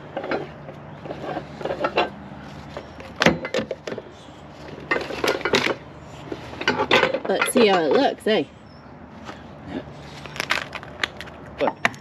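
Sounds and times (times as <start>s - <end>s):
metal and wood knocks and scrapes: 0.0s - 8.2s.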